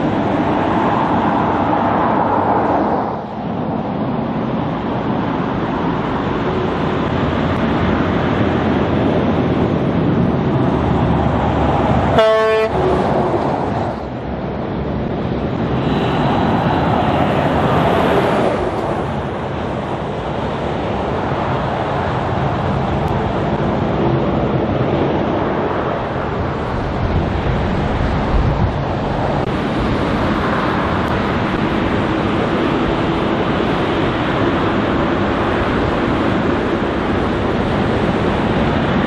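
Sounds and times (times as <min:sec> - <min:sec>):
heavy trucks driving past: 0:00.0 - 0:39.0
truck horn toot: 0:12.1 - 0:13.0.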